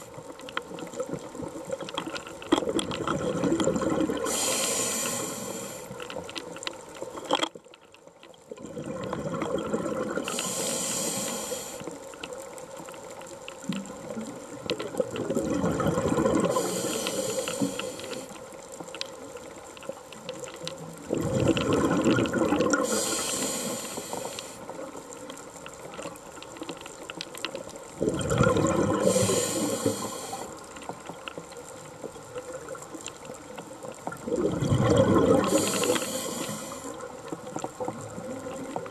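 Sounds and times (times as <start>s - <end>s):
exhaled bubbles gurgling: 0.0s - 7.4s, 8.4s - 18.6s, 19.2s - 38.9s
faint clicks: 0.0s - 34.2s, 34.9s - 38.9s
regulator hissing inhalation: 4.2s - 6.0s, 10.2s - 11.9s, 16.4s - 18.4s, 22.8s - 24.6s, 29.0s - 30.6s, 35.4s - 37.0s.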